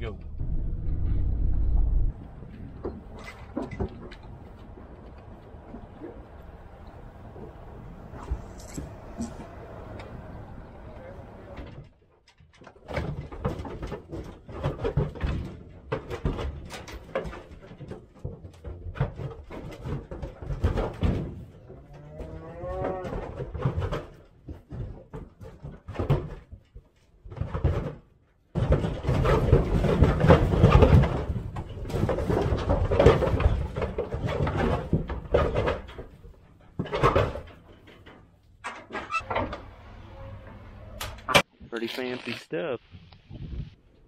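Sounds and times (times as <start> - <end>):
cow mooing: 21.8 - 23.2.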